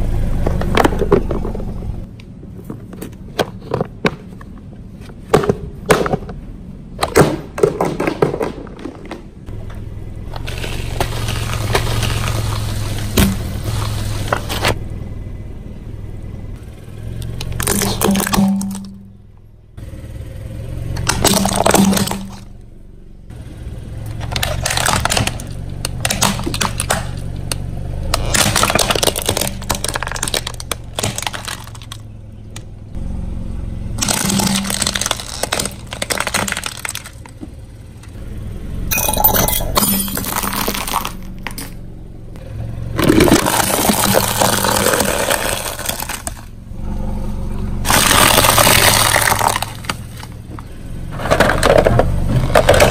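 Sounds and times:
steady low hum: 0.0 - 52.9
plastic cracking under car tyre: 7.0 - 9.3, 10.3 - 14.8, 21.0 - 22.5, 24.1 - 32.7, 34.0 - 37.6, 40.2 - 41.7, 43.0 - 46.6, 47.9 - 52.9.

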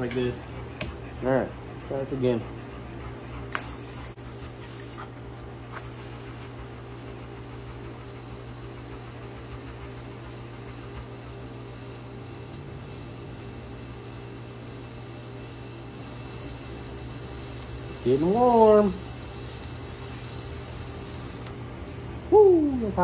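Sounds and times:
welding arc hissing: 3.6 - 5.0, 5.8 - 21.5.

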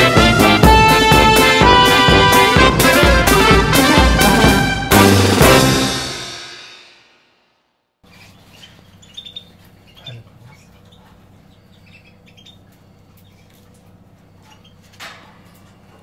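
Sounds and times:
cage birds chirping: 8.0 - 16.0
low electrical hum: 8.0 - 16.0.

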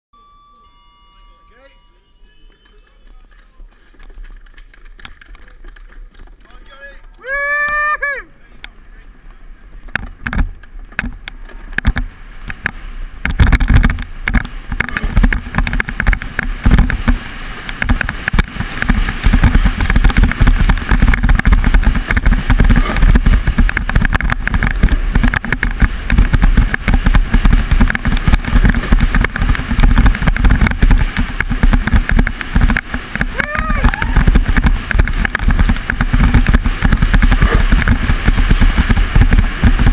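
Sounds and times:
sled runners rumbling on ice: 2.5 - 39.9
wind buffeting microphone: 9.6 - 39.9.

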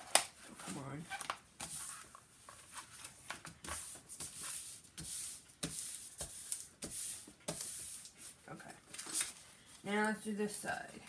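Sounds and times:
plastic film rustling and crinkling: 8.8 - 10.2.

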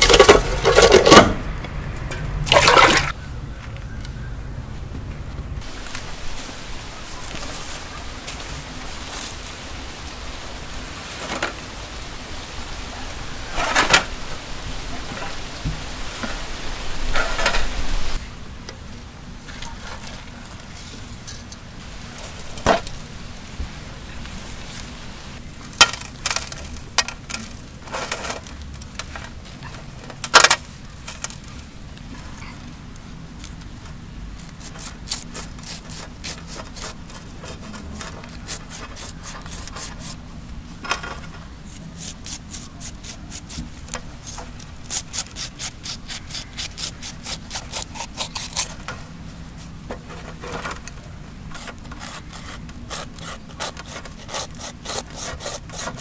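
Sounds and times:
knife scraping fish scales: 34.6 - 40.2, 41.7 - 43.6, 44.2 - 48.8, 51.6 - 56.0.

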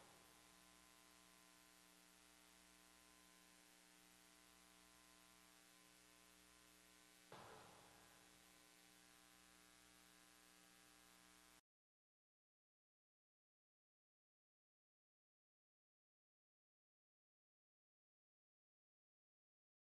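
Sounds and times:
electrical mains hum: 0.0 - 11.6.

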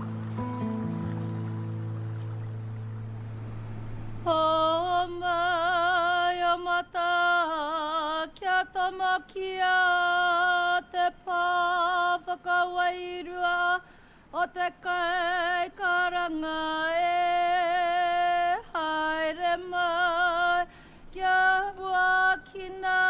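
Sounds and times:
sustained music chord: 0.0 - 5.3
woman chanting long wavering notes: 4.2 - 9.6.

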